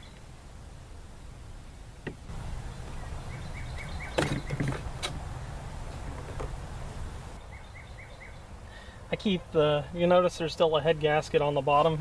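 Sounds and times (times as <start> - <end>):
bird chirping: 0.0 - 0.3, 2.3 - 6.3, 7.3 - 9.0
low steady rumble: 0.0 - 7.5.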